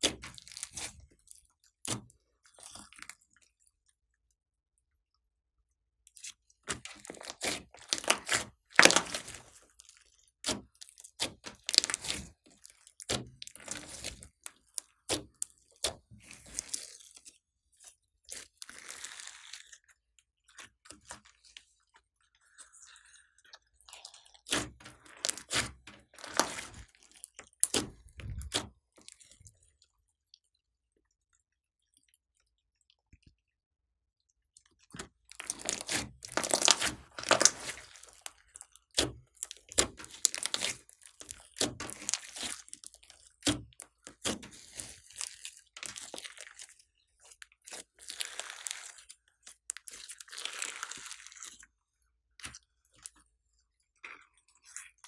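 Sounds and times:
slime crackling and popping: 0.0s - 1.2s, 6.2s - 17.2s, 23.9s - 29.3s, 35.0s - 51.6s.

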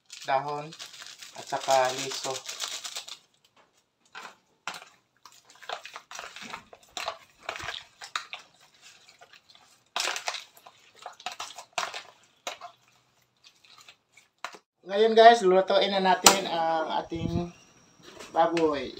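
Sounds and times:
metal spoon scraping plastic tub: 4.1s - 14.7s
wet squelches of mixing meat: 4.7s - 14.7s.

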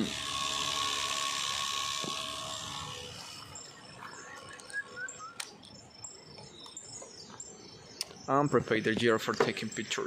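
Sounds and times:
radiator cooling fan whirring: 0.0s - 5.4s
birds chirping: 1.8s - 10.0s.

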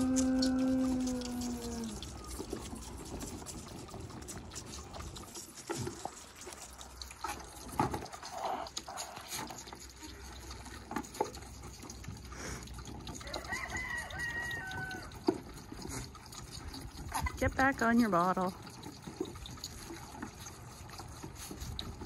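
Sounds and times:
high-pitched animal call: 0.0s - 3.2s
goat kids sucking and slurping: 0.0s - 22.0s.

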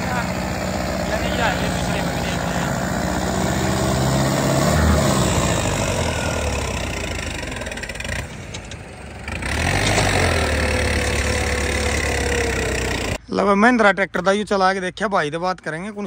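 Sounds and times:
tractor diesel engine running: 0.0s - 13.2s.

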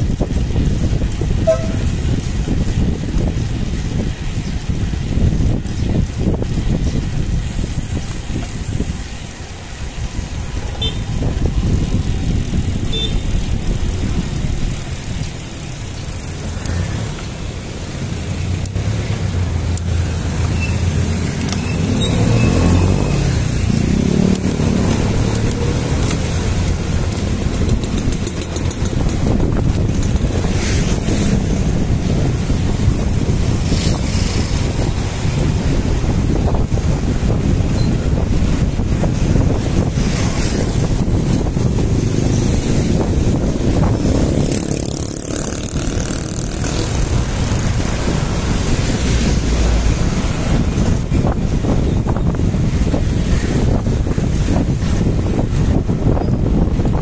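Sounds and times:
bicycle road rumble: 0.0s - 57.0s
wind buffeting microphone: 0.0s - 57.0s
motor vehicle engine passing: 18.1s - 36.7s, 39.3s - 51.8s.

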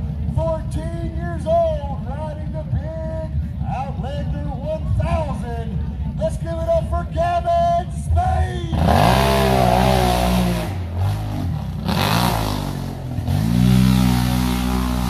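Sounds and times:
quad engine revving: 8.7s - 15.0s.

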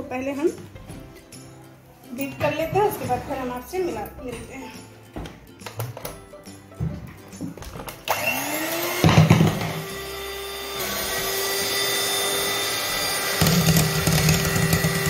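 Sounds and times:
electric hand mixer whine: 8.0s - 15.0s.

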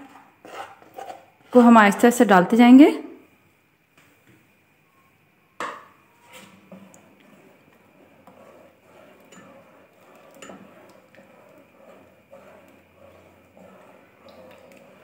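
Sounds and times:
pan clinking and scraping pot: 6.2s - 15.0s.

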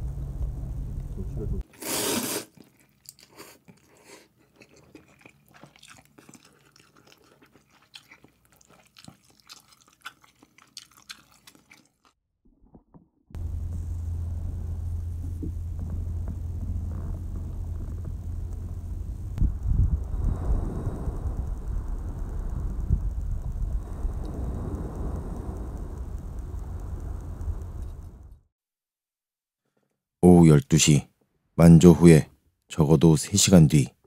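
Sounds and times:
person chewing: 1.7s - 12.2s
wind buffeting microphone: 13.4s - 28.4s.

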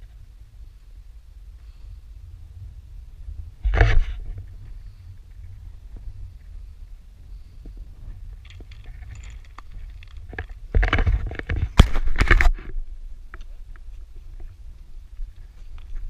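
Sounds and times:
low wind rumble: 0.0s - 16.0s
camera handling noise: 8.5s - 12.7s.

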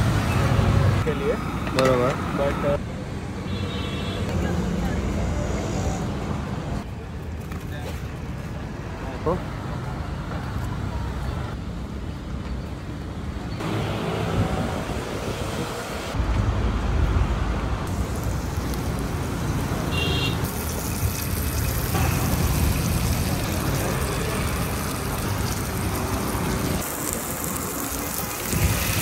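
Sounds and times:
road traffic rumbling: 0.0s - 29.0s
food frying in oil: 17.9s - 29.0s.

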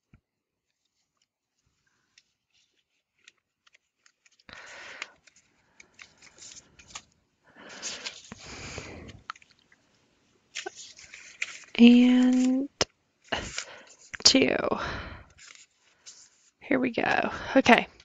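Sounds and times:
paper rustling: 0.0s - 9.6s, 10.4s - 14.2s, 15.3s - 16.6s
paper cards being shuffled: 0.6s - 9.6s, 10.5s - 14.2s, 15.3s - 16.6s.

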